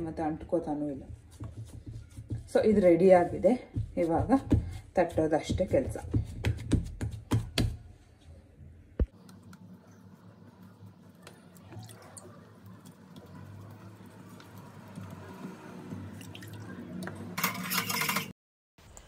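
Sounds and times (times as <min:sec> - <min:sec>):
soft patting and rustling: 0:01.0 - 0:08.0.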